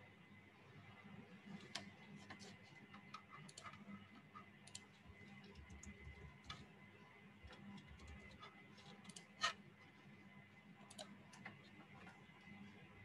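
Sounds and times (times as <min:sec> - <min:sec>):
low steady hum: 0:00.0 - 0:13.0
computer mouse clicks: 0:01.6 - 0:06.6, 0:07.5 - 0:09.6, 0:10.8 - 0:11.8.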